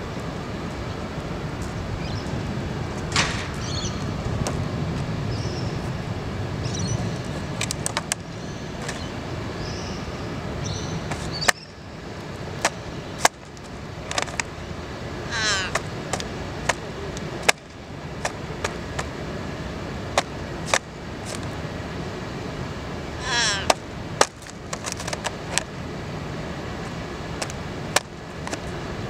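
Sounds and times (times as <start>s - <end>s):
city traffic hum: 0.0s - 29.0s
bird trilling call: 3.5s - 4.1s, 5.3s - 5.8s, 8.3s - 11.8s, 15.3s - 15.8s, 23.2s - 23.8s.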